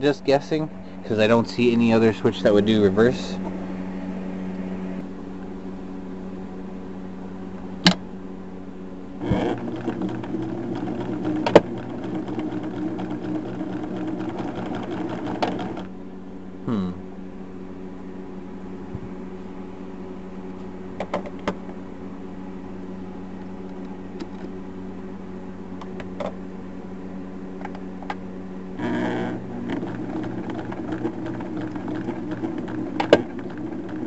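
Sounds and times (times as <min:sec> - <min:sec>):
sewing machine running: 0:09.2 - 0:15.9, 0:28.8 - 0:34.0.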